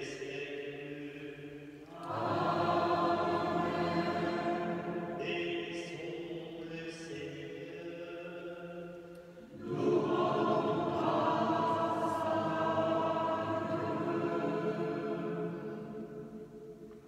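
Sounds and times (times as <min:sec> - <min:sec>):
choir singing chant: 0:01.9 - 0:06.0, 0:09.4 - 0:16.7.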